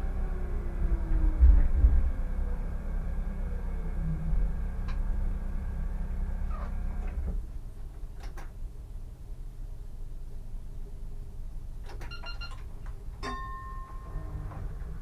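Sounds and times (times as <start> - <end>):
tram motor whine: 0.0 - 7.4, 13.4 - 15.0
tram running gear rumble: 0.0 - 9.1, 12.7 - 15.0.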